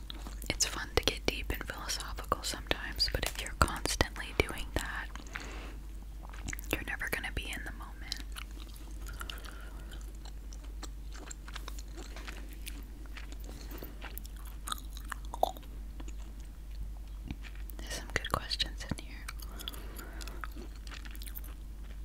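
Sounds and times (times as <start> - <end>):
gum chewing mouth clicks: 6.2 - 6.9, 8.0 - 22.0.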